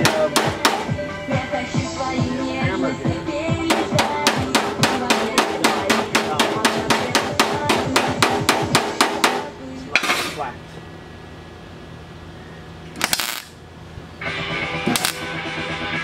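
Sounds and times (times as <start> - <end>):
hammer striking sheet metal: 0.0 - 0.9, 3.7 - 10.4
welder arc crackling: 12.9 - 13.6, 14.8 - 15.4.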